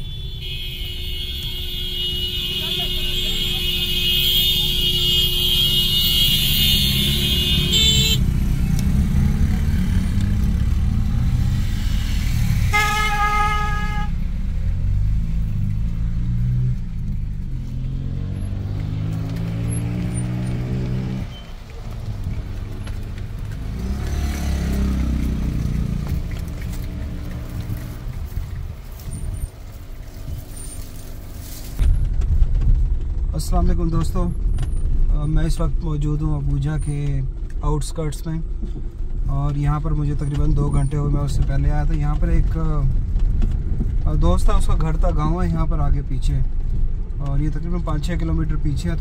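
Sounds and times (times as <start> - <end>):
vehicle horn toot: 0.0 - 8.3, 12.7 - 14.2
car engine and tyres rumbling: 0.0 - 49.0.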